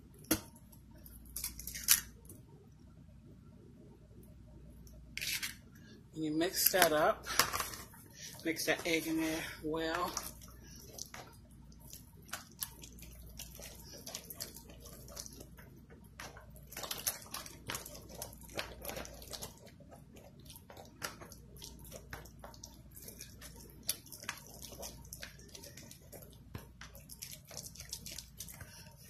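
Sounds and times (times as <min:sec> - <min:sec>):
wet mixing sounds: 0:06.4 - 0:29.0.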